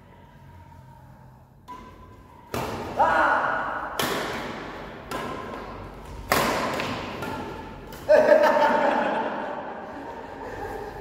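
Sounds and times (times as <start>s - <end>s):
rackets hitting shuttlecock: 1.6s - 8.5s.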